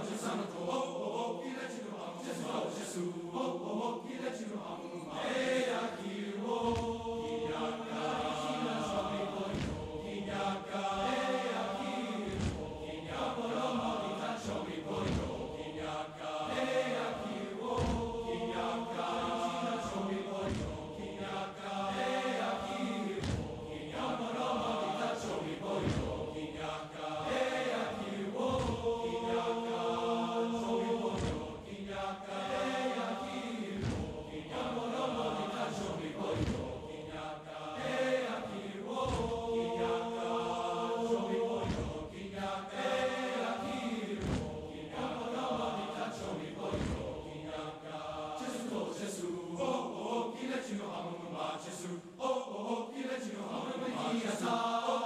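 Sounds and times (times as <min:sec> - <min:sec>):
choir singing in harmony: 0:00.0 - 0:55.0
body percussion thumps: 0:06.6 - 0:07.6, 0:08.9 - 0:11.1, 0:12.3 - 0:13.2, 0:14.4 - 0:16.0, 0:17.7 - 0:18.6, 0:19.8 - 0:21.3, 0:23.2 - 0:23.8, 0:25.2 - 0:29.5, 0:30.6 - 0:32.6, 0:33.8 - 0:34.7, 0:35.3 - 0:37.2, 0:39.0 - 0:40.0, 0:41.5 - 0:42.4, 0:44.2 - 0:44.8, 0:46.6 - 0:47.4.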